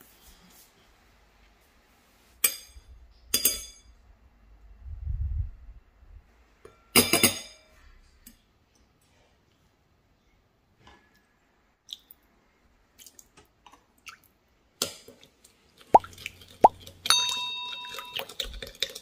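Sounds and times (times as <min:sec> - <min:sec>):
metal spoon clinking against bowls: 0:16.1 - 0:19.0.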